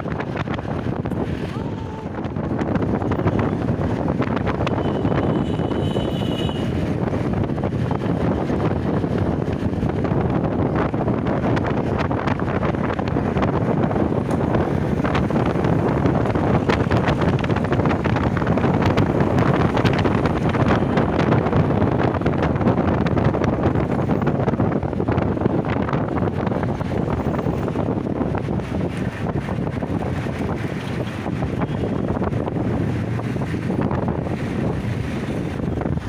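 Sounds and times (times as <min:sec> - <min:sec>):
road and traffic noise: 0:00.0 - 0:36.0
wind rushing over microphone: 0:00.0 - 0:36.0.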